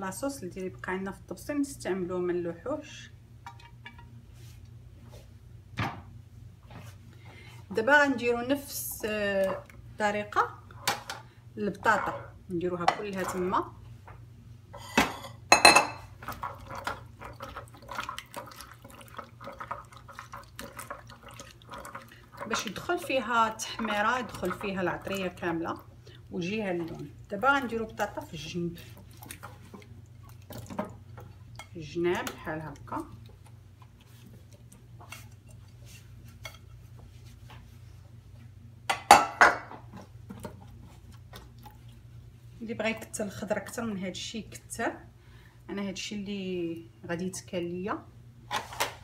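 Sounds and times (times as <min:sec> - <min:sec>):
dishes clattering: 0:03.5 - 0:04.1, 0:14.8 - 0:16.1, 0:38.9 - 0:39.9
ceramic clink: 0:14.8 - 0:16.0
potato pieces squelching in sauce: 0:16.1 - 0:37.5.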